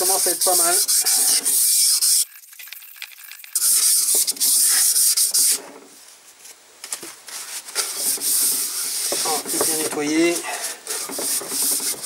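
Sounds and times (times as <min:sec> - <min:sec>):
abrasive rasping on metal cylinder: 0:07.8 - 0:12.0.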